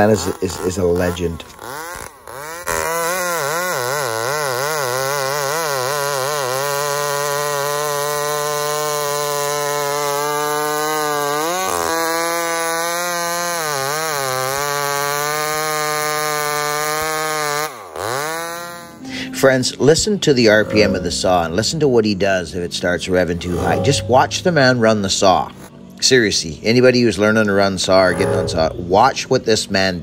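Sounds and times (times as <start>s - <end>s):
chainsaw cutting log: 0.0s - 19.3s, 23.1s - 24.8s.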